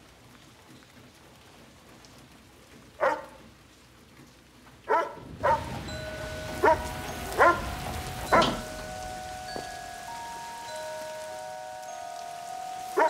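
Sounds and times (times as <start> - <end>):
rain falling: 0.0 - 13.0
dog barking: 3.0 - 3.4, 4.9 - 5.8, 6.6 - 8.7.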